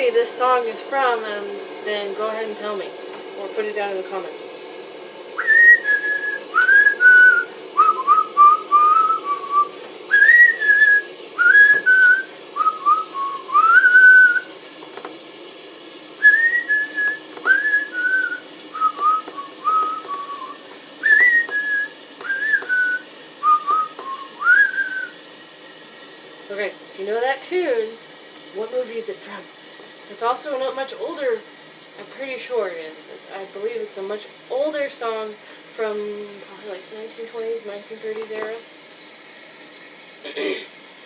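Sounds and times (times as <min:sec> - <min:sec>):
woman whistling a melody: 0:05.4 - 0:14.5, 0:16.2 - 0:25.1.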